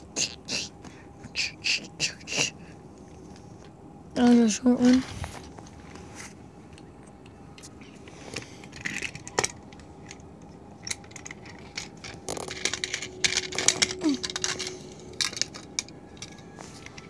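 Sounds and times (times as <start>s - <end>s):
toys clicking and clattering: 8.6s - 17.0s.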